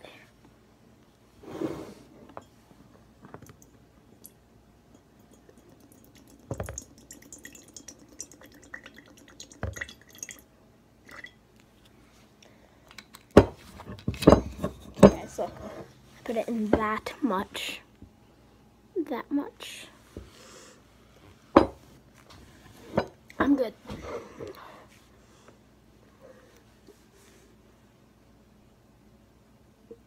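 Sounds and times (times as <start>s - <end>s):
liquid trickling into glass jar: 5.2s - 11.4s.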